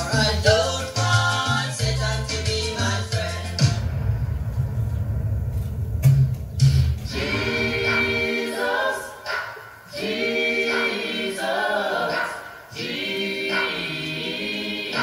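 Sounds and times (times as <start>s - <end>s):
choir singing: 7.1s - 15.0s.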